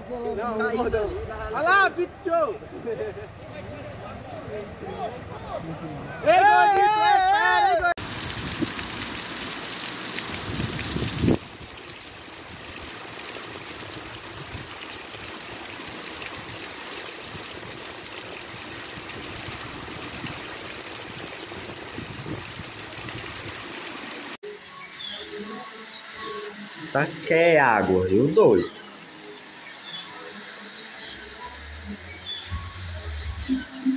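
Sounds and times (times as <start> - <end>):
heavy rain pouring: 8.0 - 24.4.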